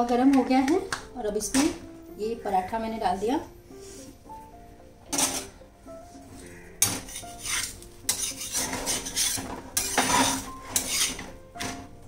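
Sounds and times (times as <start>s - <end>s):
spatula scraping iron pan: 6.8s - 11.7s.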